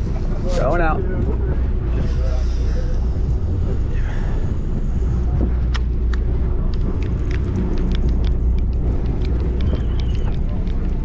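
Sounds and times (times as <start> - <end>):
boat engine rumble: 0.0 - 11.0.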